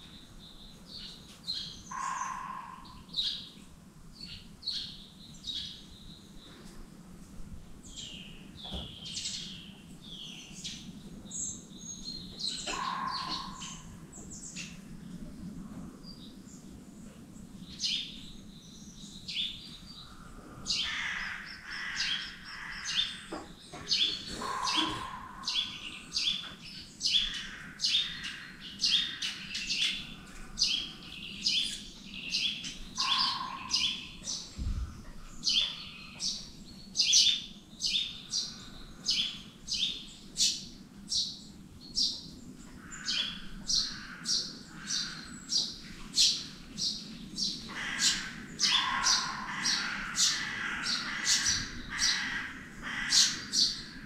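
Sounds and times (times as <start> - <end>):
birds chirping: 0.0 - 6.8, 7.9 - 54.0.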